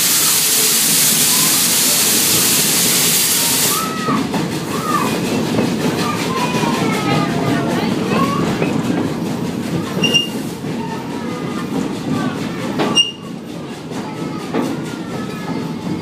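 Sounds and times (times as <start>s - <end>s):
train car rumbling on track: 0.0s - 16.0s
wheels squeaking: 9.7s - 11.6s, 12.7s - 13.4s.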